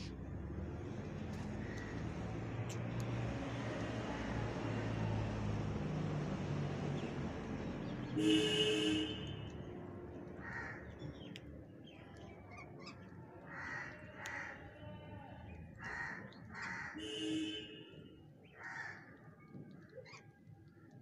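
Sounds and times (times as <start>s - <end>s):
harsh rasping bird calls: 10.4s - 11.3s, 12.4s - 14.8s, 15.8s - 17.4s, 18.4s - 19.2s.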